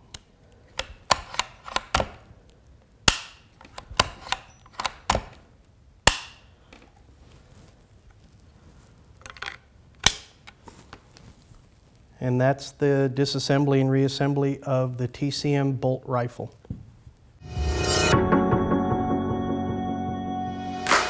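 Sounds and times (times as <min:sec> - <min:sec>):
rifle bolt metallic clicks: 0:00.8 - 0:02.2.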